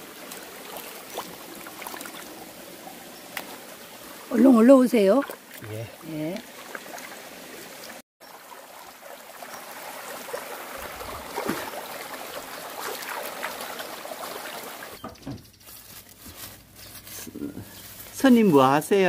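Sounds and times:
stream trickling over rocks: 0.0 - 15.0
hands splashing in water: 10.8 - 14.6.

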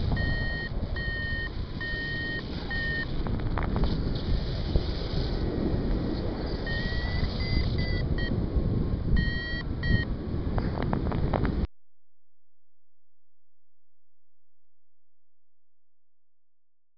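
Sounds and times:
variometer beeping: 0.0 - 3.2, 6.6 - 8.4, 9.1 - 10.1
wind rushing on microphone: 0.0 - 11.7.

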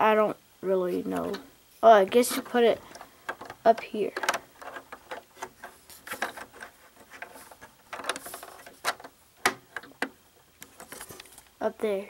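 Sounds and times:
plastic bricks clicking and knocking: 2.1 - 11.3.

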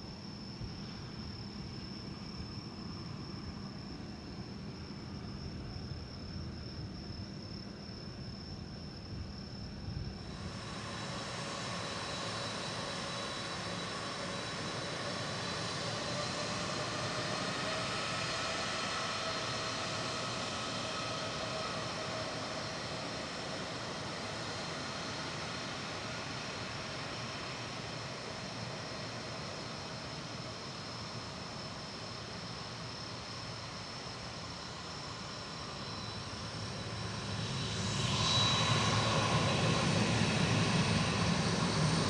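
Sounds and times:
jet engines whining: 10.3 - 31.4, 33.7 - 42.0.

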